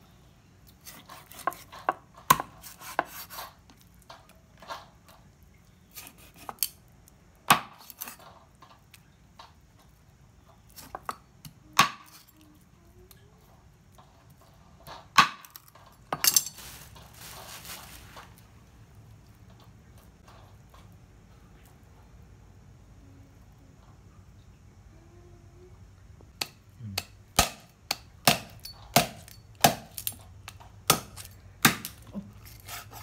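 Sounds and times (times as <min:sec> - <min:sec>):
knife chopping on wooden block: 0:00.9 - 0:03.3
scraping and handling of fish: 0:15.7 - 0:18.7.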